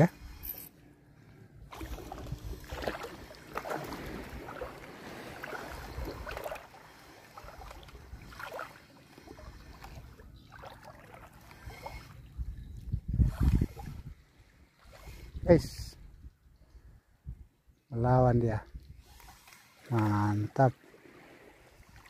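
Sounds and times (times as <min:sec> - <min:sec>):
seawater sloshing and splashing: 0:01.7 - 0:12.5, 0:18.9 - 0:22.0.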